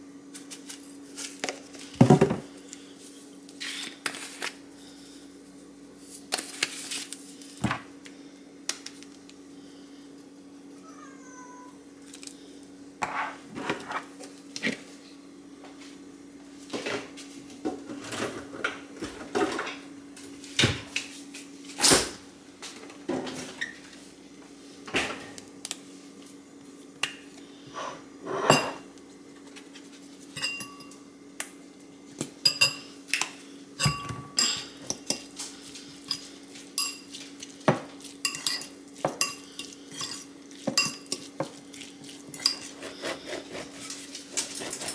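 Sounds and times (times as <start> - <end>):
metal fork clinking on ceramic bowl: 30.4 - 31.0, 36.8 - 37.1, 38.3 - 40.2.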